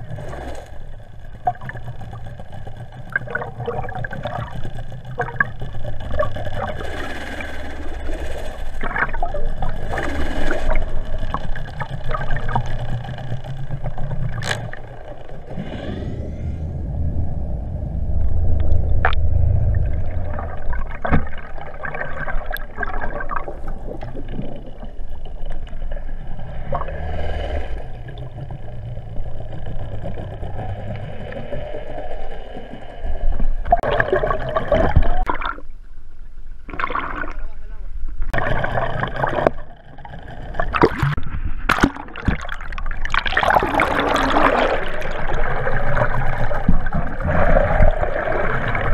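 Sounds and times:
faint engine whine: 0.0 - 21.8
underwater rushing water: 0.0 - 35.9, 36.6 - 48.9
water splashing and gurgling: 0.0 - 35.9, 36.6 - 48.9.

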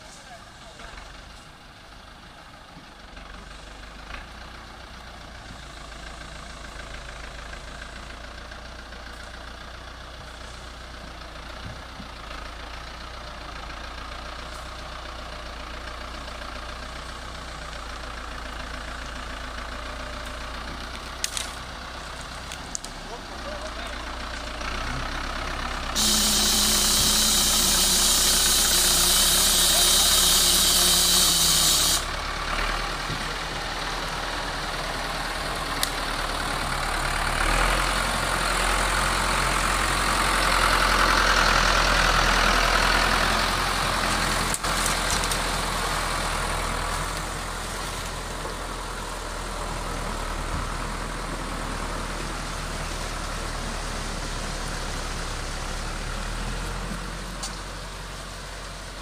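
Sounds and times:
tractor diesel engine under load: 0.0 - 59.0
loud hiss: 26.0 - 32.2.

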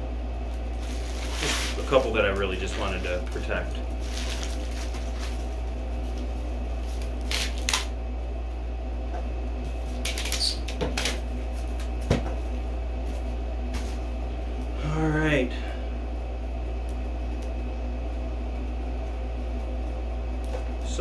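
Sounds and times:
low hum: 0.0 - 21.0
cardboard rustling: 0.8 - 6.2.

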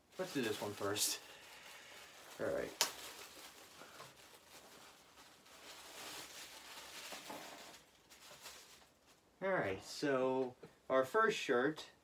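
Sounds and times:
faint rustling of packaging: 0.0 - 10.9.

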